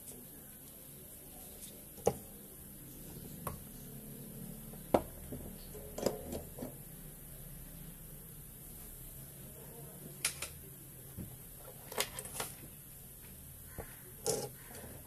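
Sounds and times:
tools knocking on workbench: 5.0 - 5.5.

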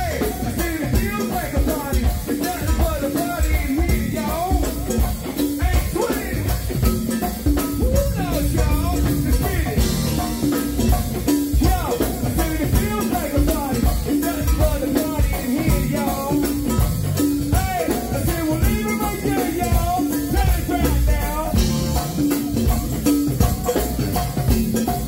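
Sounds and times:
bass and electric guitar: 0.0 - 25.0
drum kit and percussion beat: 0.0 - 25.0
people singing into microphones: 5.4 - 7.1, 7.8 - 10.6.

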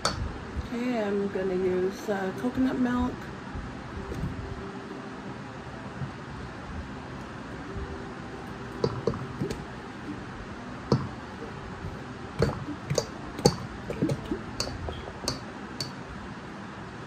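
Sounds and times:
can and spoon knocking on pot: 12.4 - 16.0.

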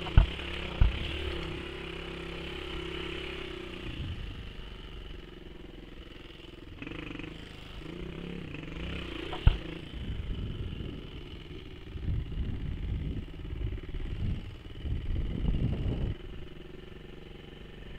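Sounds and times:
motorcycle engine revving: 0.0 - 17.9
wind buffeting microphone: 9.4 - 16.4.

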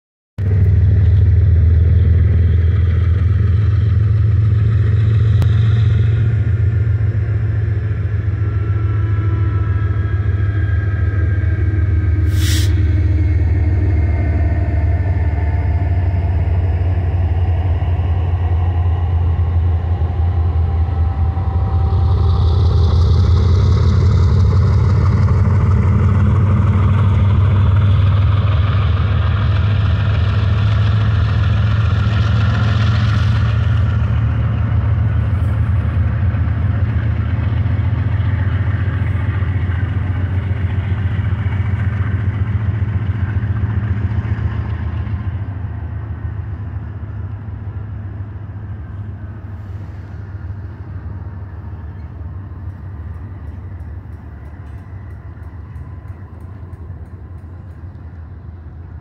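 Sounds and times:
locomotive engine drone: 0.4 - 59.0
high squealing from train: 2.7 - 45.4, 48.1 - 58.2
sharp hiss: 12.3 - 12.8.

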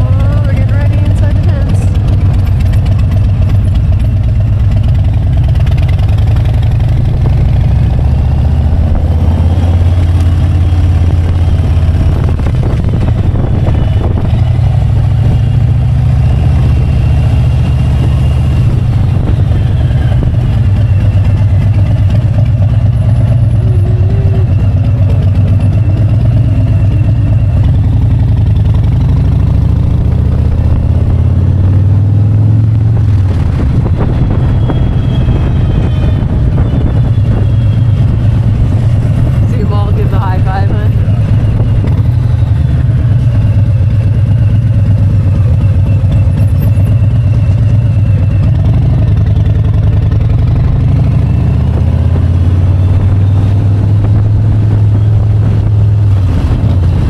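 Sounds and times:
motorcycle engine rumbling: 0.0 - 57.0.

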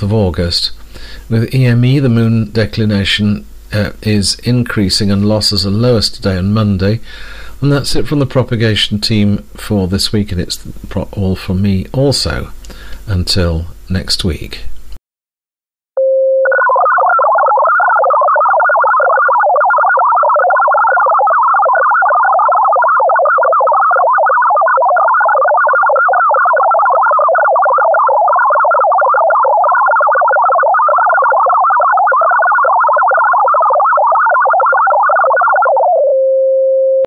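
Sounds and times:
warbling digital data tones: 16.3 - 36.2.

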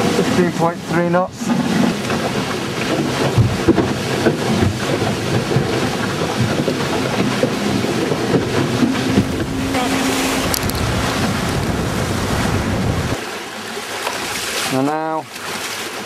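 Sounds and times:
water rushing past hull: 0.0 - 16.0
wind buffeting microphone: 1.4 - 13.2.

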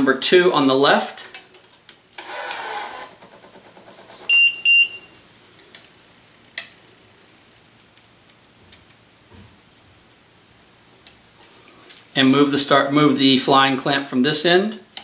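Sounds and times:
stringing machine pulling string: 2.2 - 3.8.

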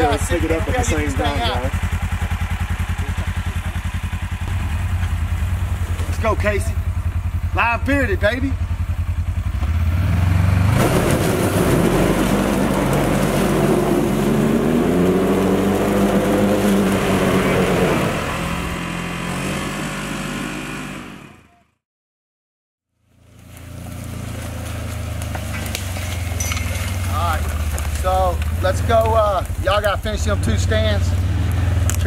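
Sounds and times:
wheels spinning in mud: 0.0 - 21.3, 23.0 - 32.0
engine revving hard: 9.4 - 21.5.

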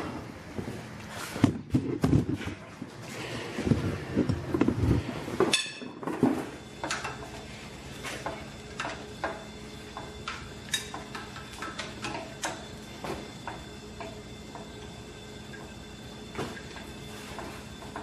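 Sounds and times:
metal clang: 5.5 - 6.0.

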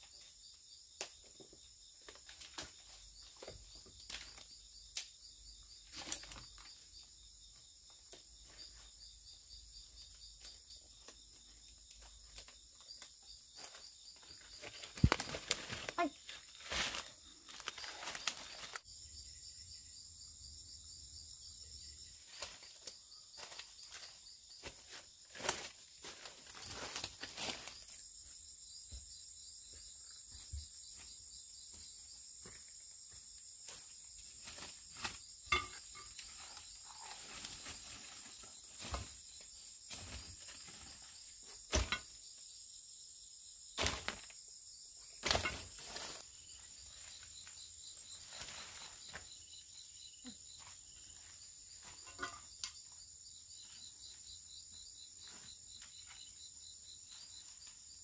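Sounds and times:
forest insects chirring: 0.0 - 58.0
footsteps in leaf litter: 14.6 - 18.8.

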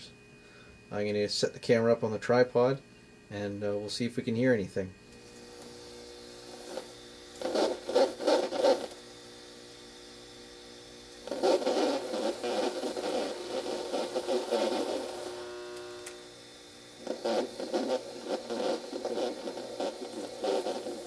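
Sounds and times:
steady mains hum: 0.0 - 21.0
harsh noisy film audio bursts: 5.4 - 9.9, 10.7 - 21.0.

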